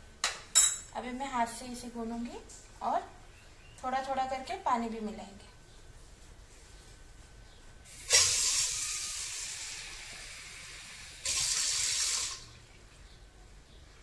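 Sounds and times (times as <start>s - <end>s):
water running from a tap: 8.1s - 12.6s.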